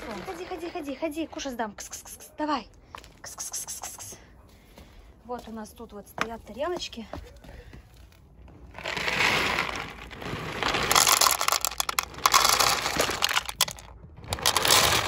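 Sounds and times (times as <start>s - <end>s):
bag rustling: 8.7s - 15.0s
kibble rattling into plastic bowl: 8.8s - 15.0s.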